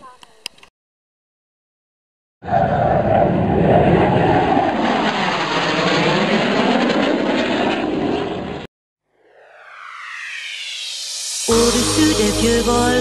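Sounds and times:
loud engine noise: 0:09.9 - 0:13.0.

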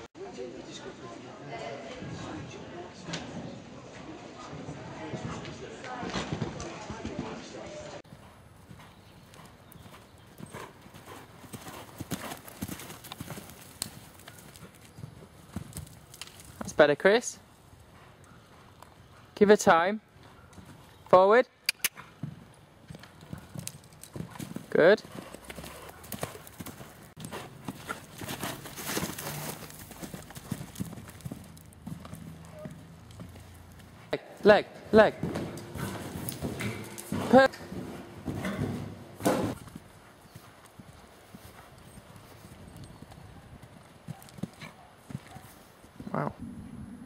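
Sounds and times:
horse hoofbeats on sand: 0:04.6 - 0:16.8, 0:22.0 - 0:46.2.

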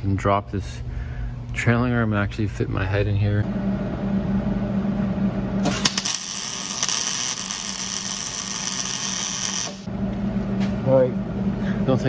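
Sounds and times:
welding arc crackling and hissing: 0:05.7 - 0:09.9.

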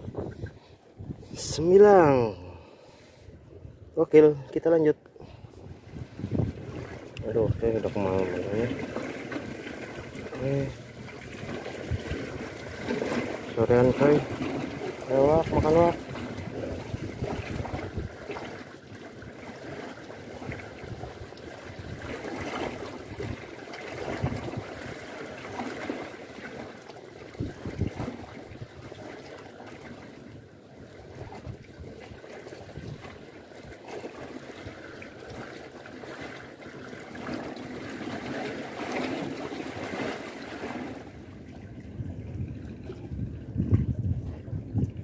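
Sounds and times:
wind rumble on microphone: 0:00.0 - 0:04.3, 0:05.2 - 0:08.9, 0:10.1 - 0:18.6, 0:20.3 - 0:25.0, 0:27.3 - 0:29.1, 0:30.2 - 0:33.8, 0:39.8 - 0:45.0
water lapping against concrete: 0:00.0 - 0:45.0.

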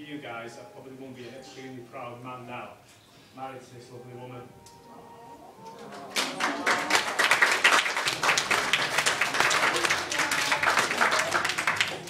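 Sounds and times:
crowd applauding: 0:05.6 - 0:12.0.

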